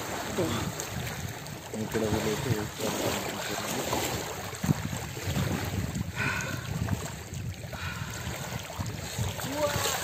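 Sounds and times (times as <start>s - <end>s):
sea water splashing around wading: 0.0s - 10.0s
wind rumbling on microphone: 0.0s - 10.0s
sharp splash: 7.8s - 10.0s.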